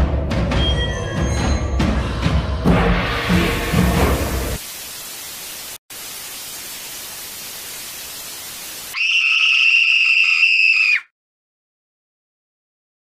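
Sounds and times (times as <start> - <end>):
television static hiss: 4.6 - 9.0.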